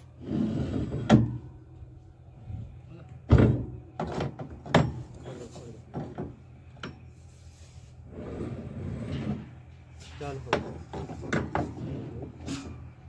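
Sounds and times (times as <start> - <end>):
metal scraping rub: 0.0 - 1.4, 7.1 - 12.9.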